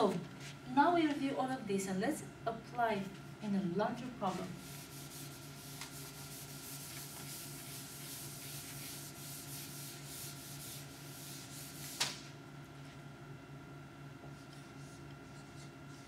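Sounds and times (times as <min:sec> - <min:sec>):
eraser scrubbing whiteboard: 0:04.2 - 0:12.3.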